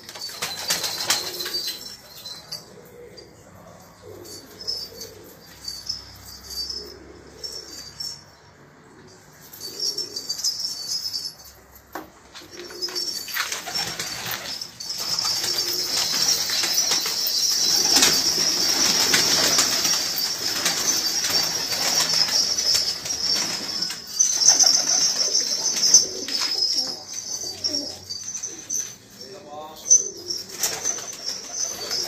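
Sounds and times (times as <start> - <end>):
pigeons flapping wings: 0.0 - 1.8, 12.6 - 26.8, 30.4 - 32.0
pigeons cooing: 0.0 - 8.3, 8.9 - 11.3, 12.3 - 29.2, 29.8 - 32.0.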